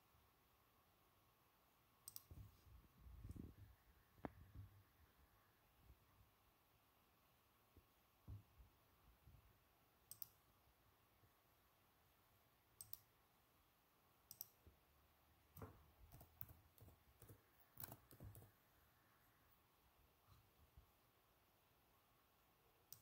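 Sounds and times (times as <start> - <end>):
computer mouse clicks: 2.0 - 2.5, 10.1 - 10.4, 12.8 - 13.1, 14.3 - 14.7, 15.5 - 18.6
typing on computer keyboard: 15.6 - 18.6.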